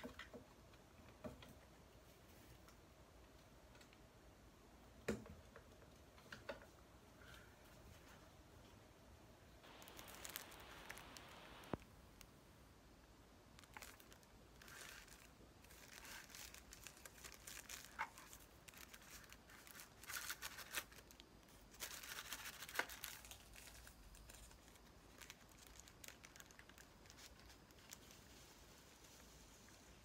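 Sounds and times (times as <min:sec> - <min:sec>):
plastic wrap crinkling and tearing: 0:09.6 - 0:11.8, 0:13.5 - 0:29.8.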